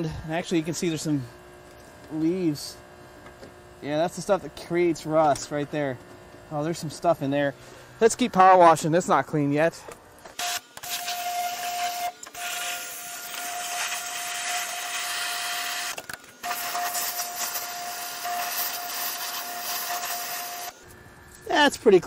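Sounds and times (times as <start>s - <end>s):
thin steady whine: 0.0s - 22.0s
pressure washer spraying water: 16.4s - 20.8s.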